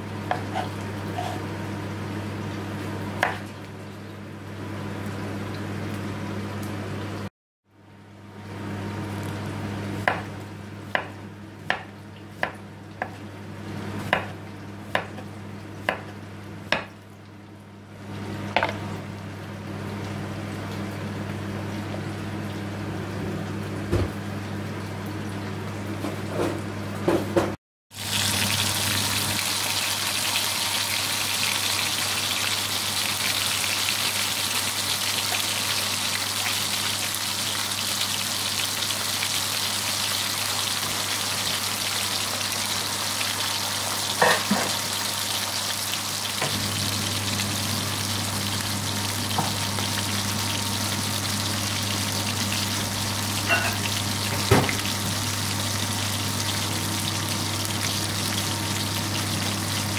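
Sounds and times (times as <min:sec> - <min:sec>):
knife chopping on wooden board: 0:03.2 - 0:03.4, 0:10.1 - 0:10.3, 0:10.9 - 0:13.2, 0:14.1 - 0:15.2
patties sizzling in a pan: 0:27.9 - 0:59.9.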